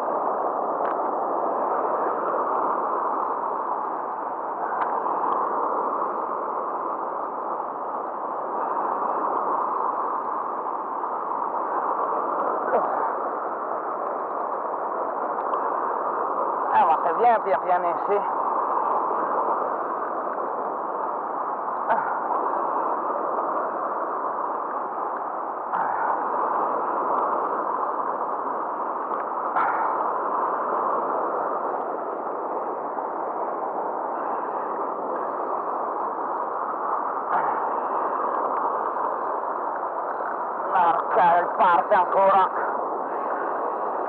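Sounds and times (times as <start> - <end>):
turbulent river water rushing: 21.3 - 44.0.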